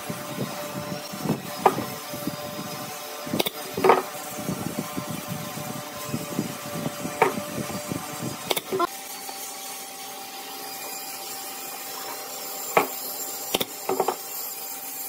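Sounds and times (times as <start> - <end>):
wooden strips clattering on block: 3.8 - 4.1, 13.6 - 14.2.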